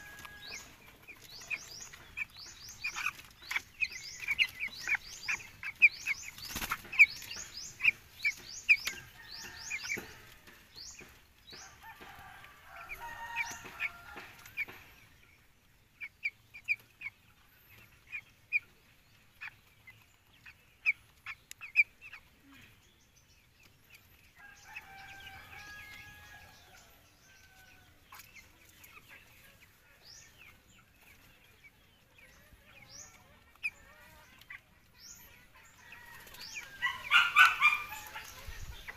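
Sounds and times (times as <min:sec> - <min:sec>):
chicks peeping: 0:00.0 - 0:38.9
lower chicken calls: 0:35.9 - 0:38.9.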